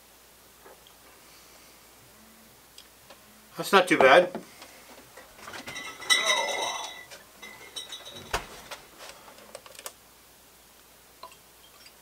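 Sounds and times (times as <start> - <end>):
dishes clinking: 5.4 - 8.8.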